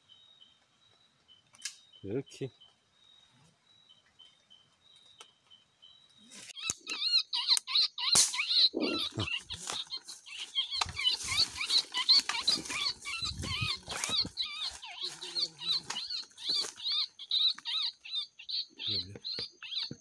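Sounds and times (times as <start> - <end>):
faint insect chirping: 0.0 - 19.9
rat squeaking: 6.6 - 20.0
rustling through wet vegetation: 8.8 - 18.0.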